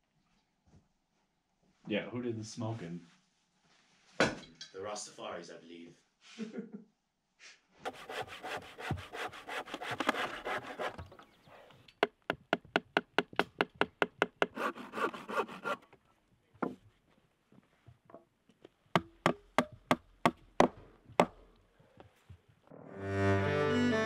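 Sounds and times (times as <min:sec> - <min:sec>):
handsaw cutting wood: 0:07.8 - 0:11.2, 0:14.4 - 0:15.8
hammer knocking on planks: 0:07.9 - 0:11.1, 0:12.0 - 0:14.7, 0:18.9 - 0:21.4.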